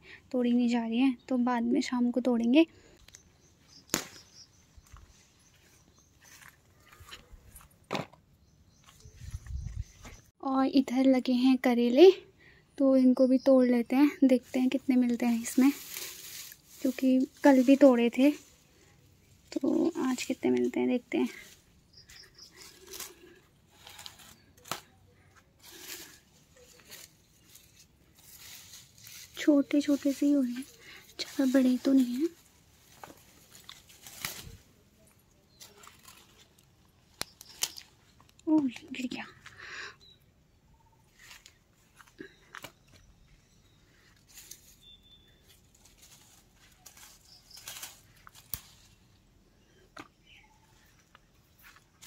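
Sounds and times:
gourd snapping off vine: 3.8s - 4.4s
leaves rustling: 14.0s - 39.5s, 43.8s - 49.7s.

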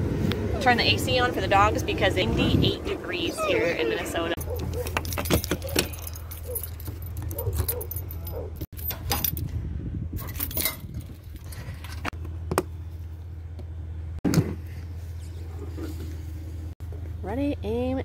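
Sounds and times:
keys jangling and clicking: 4.4s - 9.4s, 10.2s - 12.1s.

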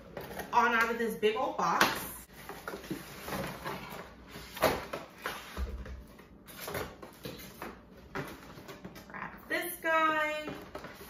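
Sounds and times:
cardboard rustling and scraping: 2.3s - 9.0s.

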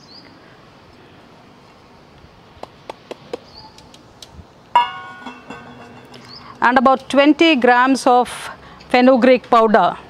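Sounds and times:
outdoor hiss: 0.0s - 10.0s
bird chirps: 3.4s - 3.9s, 6.0s - 6.6s
metal clank ringing: 4.8s - 6.5s
steel utensils clicking: 4.8s - 7.2s.

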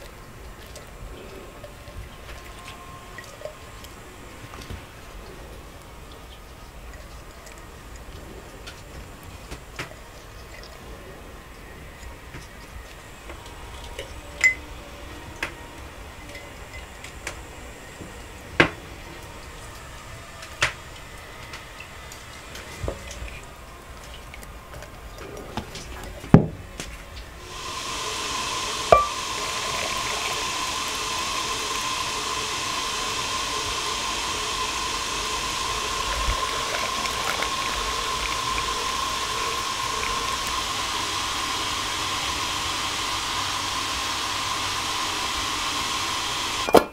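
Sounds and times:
steady hiss with thin tone: 0.0s - 46.8s
glass jars clinking on a table: 28.9s - 29.2s, 46.7s - 46.9s.

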